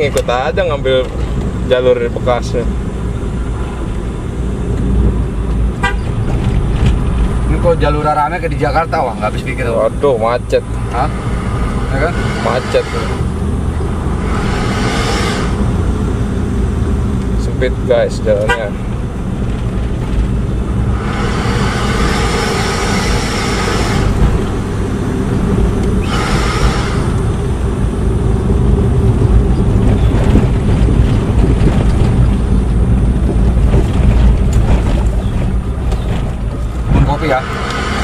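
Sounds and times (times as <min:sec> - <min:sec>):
vehicle engine low rumble: 0:00.0 - 0:38.0
hissing noise: 0:10.7 - 0:16.2, 0:20.7 - 0:27.8.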